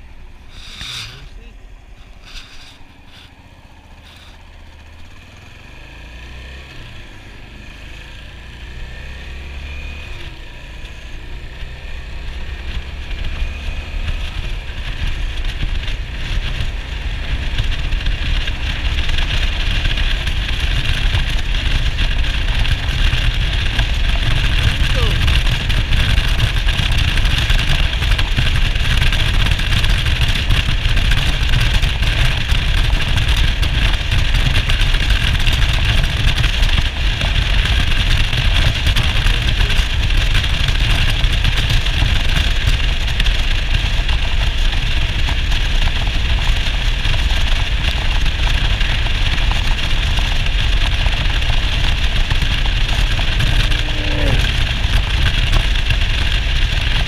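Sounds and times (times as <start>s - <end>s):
motorcycle engine running: 0.0s - 57.0s
steady rushing noise: 42.7s - 57.0s.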